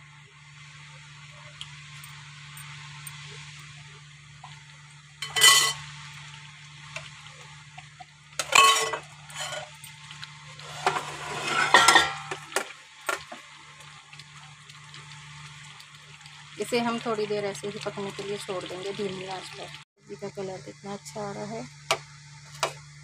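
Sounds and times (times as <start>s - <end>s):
spoon scraping pan: 8.4s - 9.8s, 10.6s - 12.4s.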